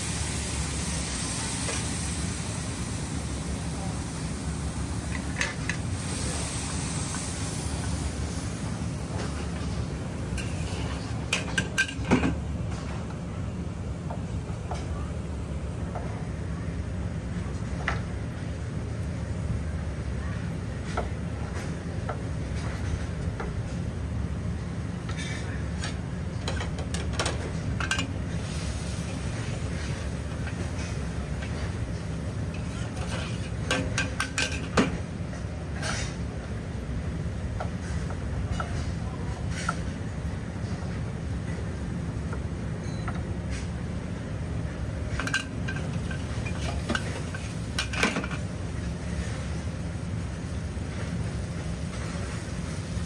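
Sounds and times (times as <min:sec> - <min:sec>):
metal ladle scraping a wok: 0:32.5 - 0:34.7.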